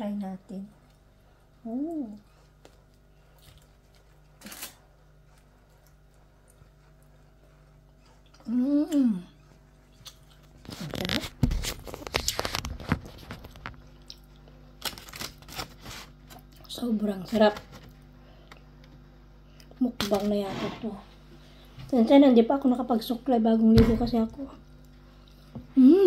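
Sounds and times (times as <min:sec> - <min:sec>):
woman humming: 0:01.6 - 0:02.3, 0:08.4 - 0:09.4, 0:25.7 - 0:26.0
aluminium foil crinkling: 0:03.7 - 0:04.8, 0:10.0 - 0:16.5.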